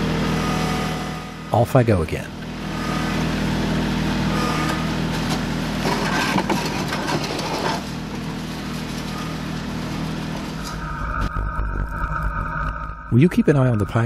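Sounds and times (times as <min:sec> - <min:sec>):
tractor engine running: 0:00.0 - 0:14.0
metal pipe scraping and rattling: 0:04.4 - 0:14.0.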